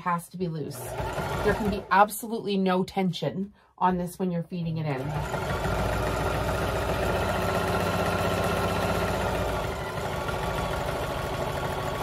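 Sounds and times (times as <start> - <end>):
electric sewing machine running: 0.8 - 2.0, 5.0 - 12.0.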